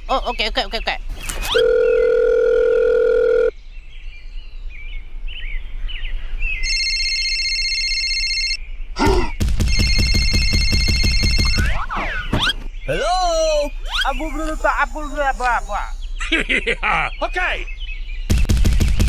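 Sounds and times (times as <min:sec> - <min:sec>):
electronic phone ringing: 0:01.5 - 0:03.5, 0:06.6 - 0:08.6, 0:09.7 - 0:11.8
telephone dial tone: 0:01.5 - 0:03.5, 0:06.7 - 0:08.6
trilling phone ring: 0:01.5 - 0:03.5, 0:06.6 - 0:08.6, 0:09.7 - 0:11.8.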